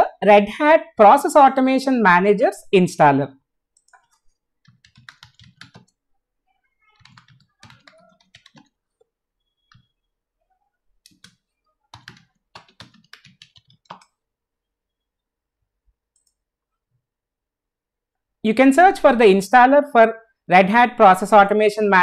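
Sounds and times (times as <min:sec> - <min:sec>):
typing on computer keyboard: 0:03.8 - 0:06.0, 0:06.9 - 0:10.0, 0:11.0 - 0:14.2.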